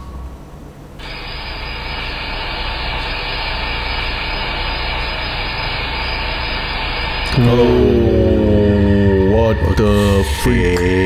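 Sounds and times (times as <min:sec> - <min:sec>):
camera recording hiss and hum: 0:00.0 - 0:04.0.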